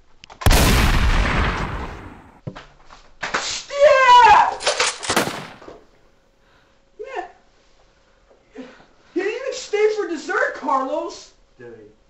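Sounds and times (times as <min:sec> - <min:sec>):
loud bang: 0:00.5 - 0:02.4
man yelling: 0:03.7 - 0:04.7.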